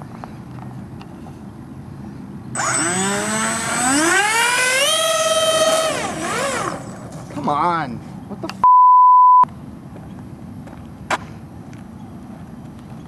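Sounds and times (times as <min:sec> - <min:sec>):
model jet fan motors whining: 0:02.6 - 0:07.3.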